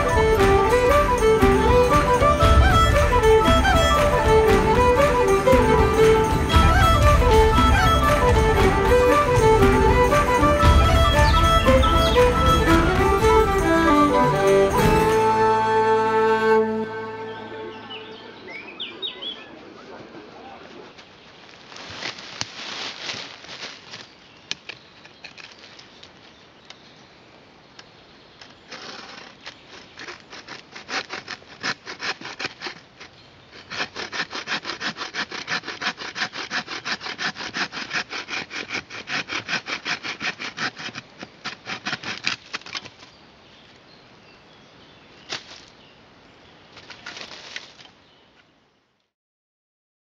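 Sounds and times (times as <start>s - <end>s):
saw cutting through branch: 0.0s - 16.6s, 28.7s - 42.9s.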